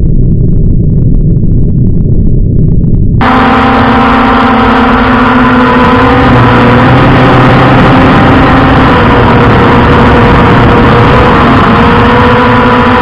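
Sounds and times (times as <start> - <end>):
drone motors whining: 3.2 - 13.0.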